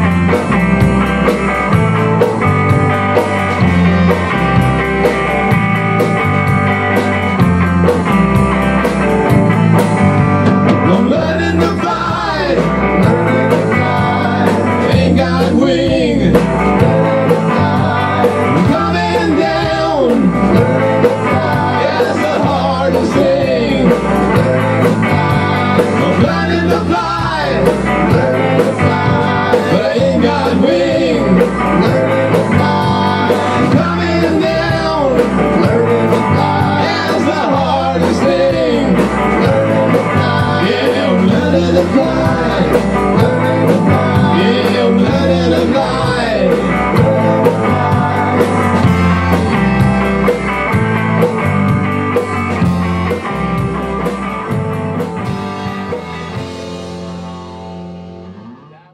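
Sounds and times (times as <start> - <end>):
bass guitar: 0.0 - 58.9
drum kit: 0.0 - 58.9
electric guitar: 0.0 - 58.9.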